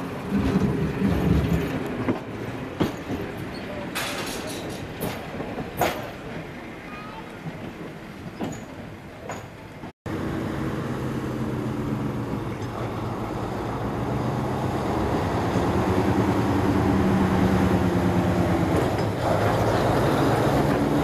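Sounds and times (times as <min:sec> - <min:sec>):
diesel engine running: 0:10.1 - 0:21.0.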